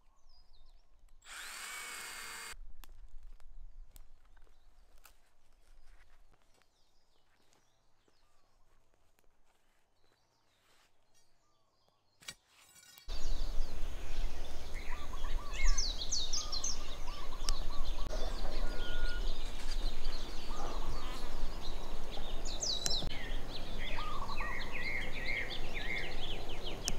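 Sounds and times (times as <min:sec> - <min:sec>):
birds chirping and calling: 0:13.1 - 0:26.9.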